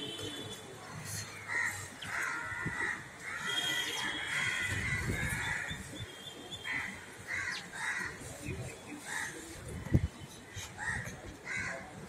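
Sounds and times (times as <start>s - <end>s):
crows cawing: 6.7s - 8.2s.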